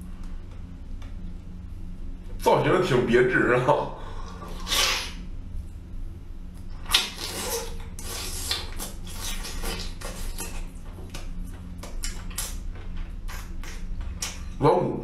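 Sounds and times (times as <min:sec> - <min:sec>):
low hum: 0:00.0 - 0:15.0
loud bite: 0:04.5 - 0:05.2, 0:06.8 - 0:12.6
wet chewing mouth clicks: 0:06.8 - 0:12.6, 0:13.2 - 0:14.5.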